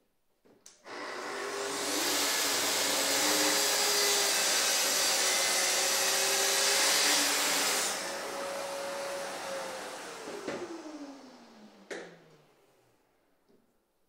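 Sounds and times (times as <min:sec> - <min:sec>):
dust extractor hissing: 0:00.9 - 0:11.5
circular saw cutting wood: 0:00.9 - 0:12.0.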